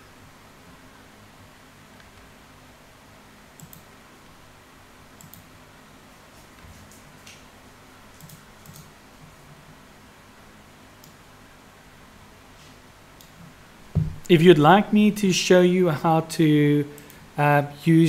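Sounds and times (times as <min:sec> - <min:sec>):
faint steady hiss: 0:00.0 - 0:18.0
keyboard and mouse clicks: 0:03.6 - 0:03.9, 0:05.2 - 0:05.5, 0:08.2 - 0:08.9.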